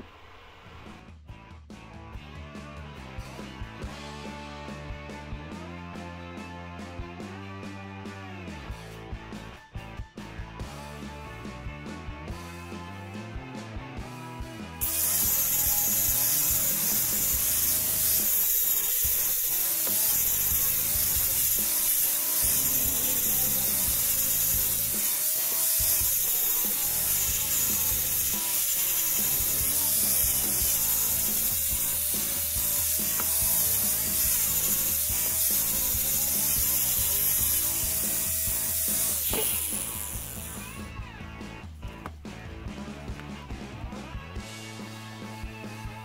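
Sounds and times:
angle grinder sanding wood: 0:14.8 - 0:40.8.

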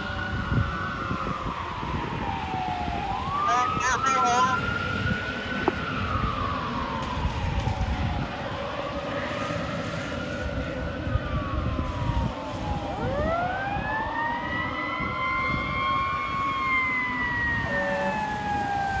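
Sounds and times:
fire engine siren wailing: 0:00.0 - 0:19.0.

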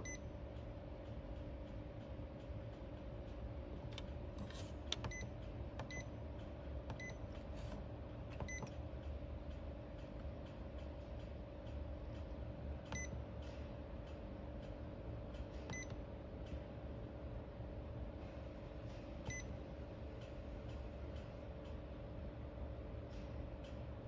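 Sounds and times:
fridge panel beeps: 0:00.0 - 0:00.3, 0:05.0 - 0:06.2, 0:06.9 - 0:07.3, 0:08.4 - 0:08.7, 0:15.7 - 0:16.0, 0:19.3 - 0:19.5
steady hum: 0:00.0 - 0:24.0.

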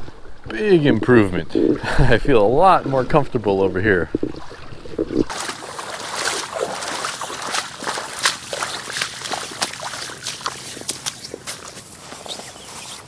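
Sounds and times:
footsteps splashing through water: 0:04.3 - 0:13.0.

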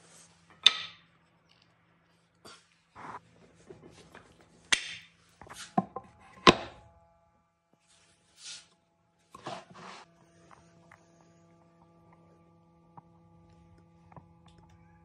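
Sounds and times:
sharp wooden knocks: 0:00.6 - 0:01.0
brushing and rubbing handling noises: 0:05.3 - 0:06.4, 0:07.8 - 0:10.1.

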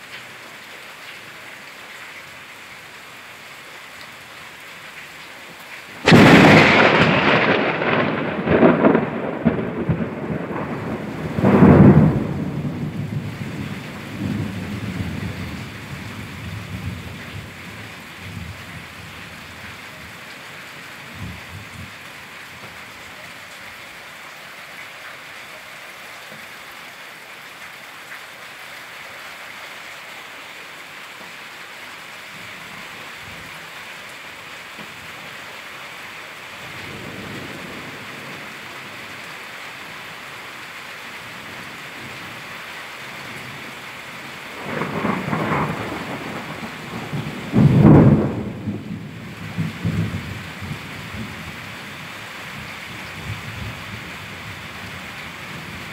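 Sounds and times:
rain falling: 0:00.0 - 0:55.9
thunder rumbling: 0:06.0 - 0:19.6, 0:44.5 - 0:51.6.

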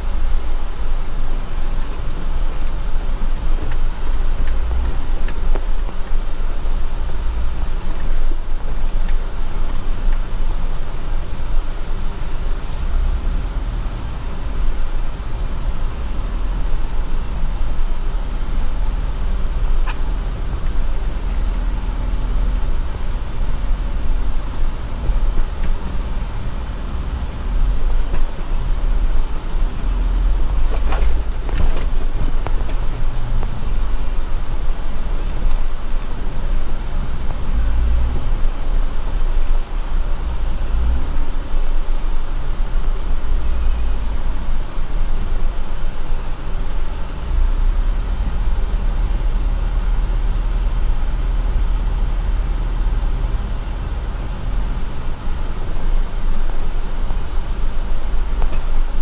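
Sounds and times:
vehicle engine and tyres rumbling: 0:00.0 - 0:59.0
gravel crunching: 0:18.2 - 0:34.4.

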